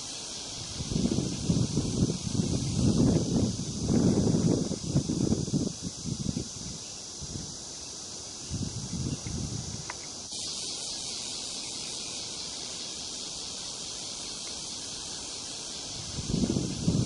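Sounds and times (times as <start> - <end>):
high outdoor ambient hiss: 0.0 - 17.0.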